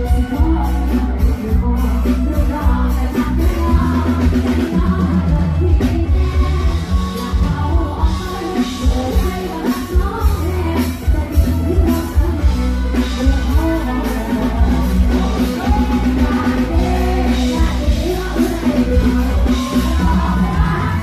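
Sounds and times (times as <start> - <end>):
full band playing: 0.0 - 21.0
woman singing into microphone: 0.0 - 21.0.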